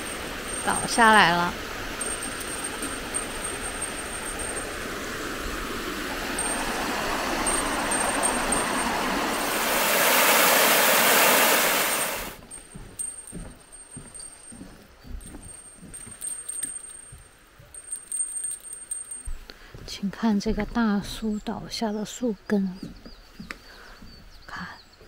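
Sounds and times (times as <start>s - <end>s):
bear bell jingling: 0.0s - 5.6s, 6.3s - 9.6s, 11.8s - 19.7s
stream flowing: 0.0s - 12.4s
white water rushing over rocks: 2.0s - 12.4s.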